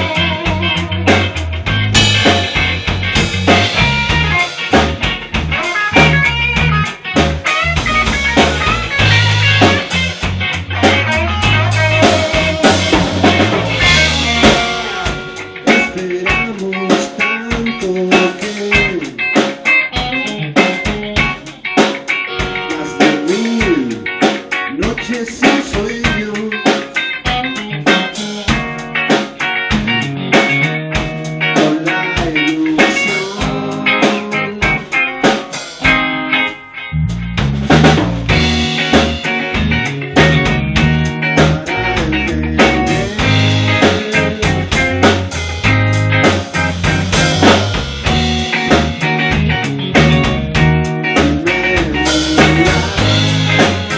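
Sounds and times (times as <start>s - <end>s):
heavy low end: 0.0s - 16.7s, 37.0s - 53.9s
drum kit: 0.0s - 53.9s
electric guitars: 0.0s - 53.9s.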